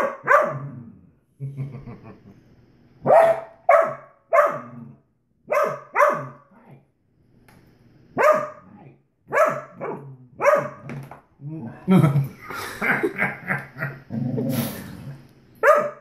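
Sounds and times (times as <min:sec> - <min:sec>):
dog yowling barks: 0:00.0 - 0:00.7, 0:03.1 - 0:04.8, 0:05.5 - 0:06.4, 0:08.2 - 0:08.6, 0:09.3 - 0:10.9, 0:15.6 - 0:16.0.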